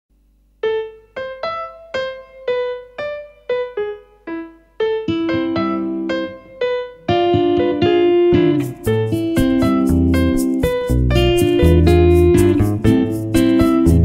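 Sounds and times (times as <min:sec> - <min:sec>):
low held piano chords: 0:00.6 - 0:14.0
slow piano melody: 0:00.6 - 0:14.0.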